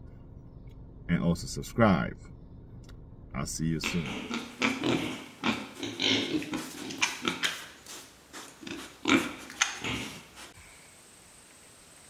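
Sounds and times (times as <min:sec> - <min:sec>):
piglets grunting and squealing: 0:03.8 - 0:10.5.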